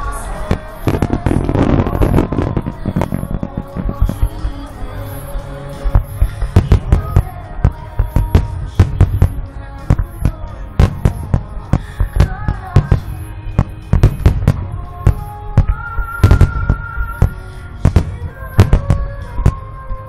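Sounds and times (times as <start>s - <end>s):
music with long held notes: 0.0s - 20.0s
firework shells bursting: 0.5s - 4.6s.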